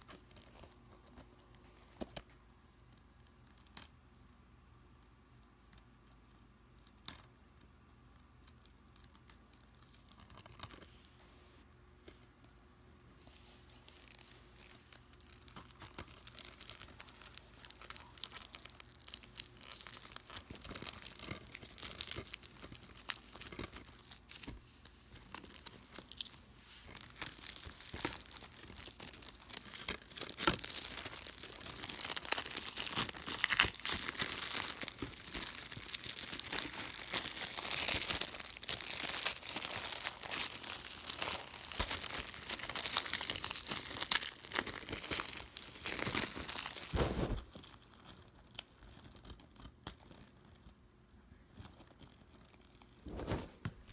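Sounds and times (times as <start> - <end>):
plastic wrapping crinkling: 0.0 - 2.2, 9.1 - 53.9.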